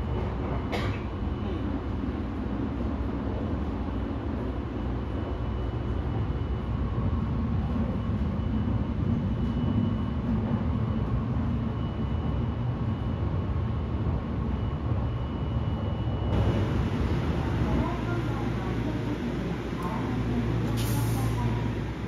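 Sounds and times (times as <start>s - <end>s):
train wheels rumbling on track: 0.0s - 11.4s, 16.2s - 22.0s
faint high whine: 3.8s - 22.0s.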